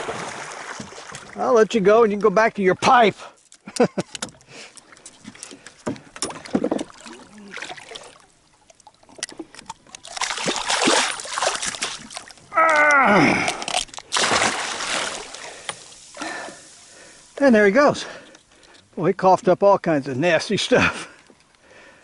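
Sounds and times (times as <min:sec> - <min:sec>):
fish splashing water: 0:00.0 - 0:01.4, 0:04.5 - 0:17.4.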